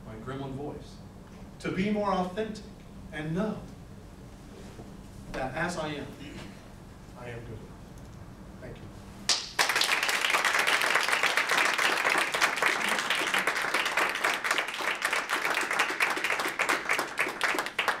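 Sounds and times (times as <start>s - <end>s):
audience applauding: 9.3s - 18.0s.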